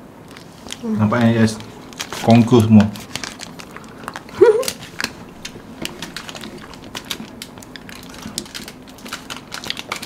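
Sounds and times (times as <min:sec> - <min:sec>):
plastic wrappers crinkling: 0:00.2 - 0:10.0
person humming: 0:04.3 - 0:04.7.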